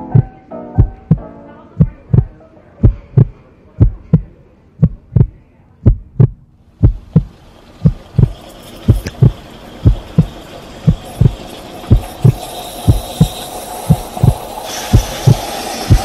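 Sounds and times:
heartbeat thumps: 0.0s - 10.3s, 10.9s - 13.3s, 13.9s - 16.0s
steam hissing: 7.0s - 16.0s.

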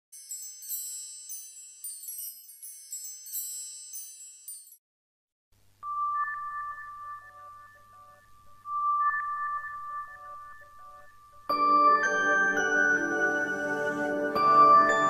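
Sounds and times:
high-pitched tinkling chimes: 0.1s - 4.8s, 5.8s - 15.0s
background music: 5.9s - 15.0s.

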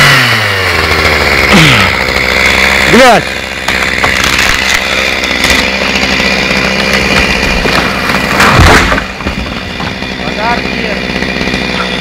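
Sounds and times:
chainsaw running: 0.0s - 12.0s.

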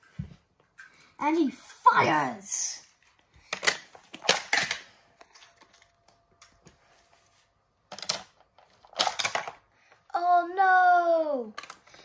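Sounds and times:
plastic toy clicks and clatter: 3.5s - 5.9s, 7.9s - 9.8s, 11.5s - 12.0s.

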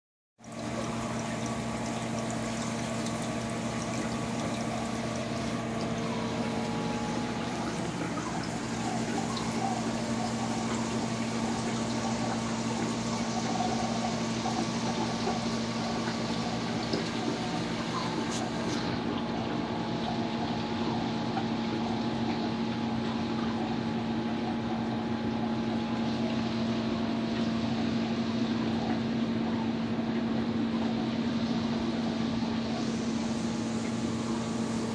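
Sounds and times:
water splashing and trickling: 0.4s - 23.9s
low electric pump hum: 0.4s - 34.9s.

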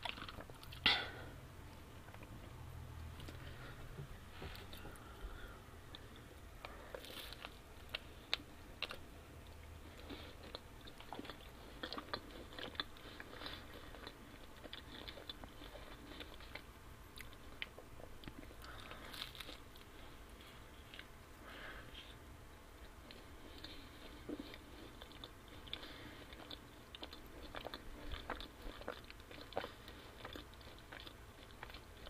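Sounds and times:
biting and chewing pizza: 0.0s - 1.1s, 1.8s - 22.2s, 22.8s - 32.0s.

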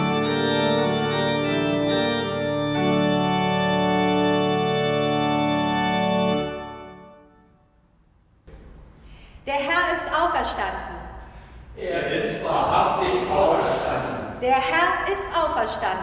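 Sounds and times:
pipe organ chords: 0.0s - 7.8s.

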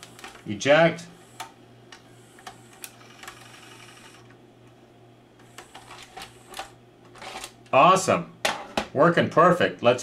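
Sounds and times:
tape mechanism clicks: 0.0s - 0.5s, 1.2s - 4.8s, 5.4s - 7.8s
thin motor whir: 1.1s - 4.4s, 5.4s - 7.5s.

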